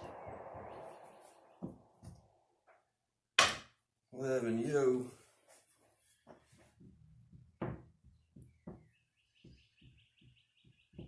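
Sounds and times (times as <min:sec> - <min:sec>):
bird chirping: 0:00.0 - 0:02.2, 0:07.5 - 0:11.0
faint knocks and taps: 0:06.3 - 0:11.0.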